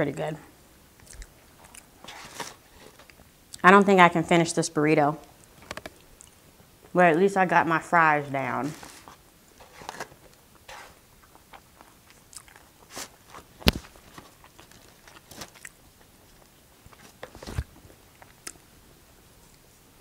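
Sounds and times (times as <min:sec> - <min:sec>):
chewing and mouth sounds: 0:01.0 - 0:02.0, 0:11.2 - 0:13.4, 0:14.3 - 0:17.0
plastic fork in styrofoam container: 0:08.7 - 0:11.0.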